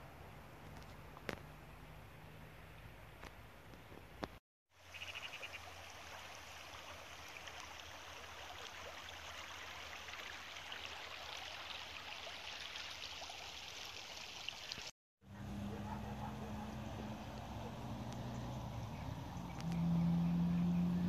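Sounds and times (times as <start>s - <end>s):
river flowing over stones: 4.8s - 14.7s
small water splashes: 4.8s - 14.9s.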